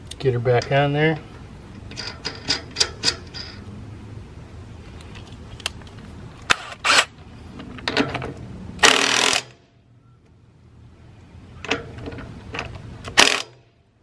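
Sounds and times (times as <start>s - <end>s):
impact wrench burst: 8.8s - 9.6s, 13.1s - 13.6s.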